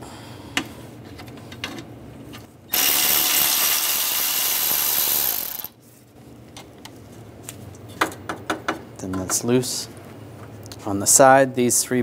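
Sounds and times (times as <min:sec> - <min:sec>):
socket ratchet ratcheting: 0:02.7 - 0:05.7.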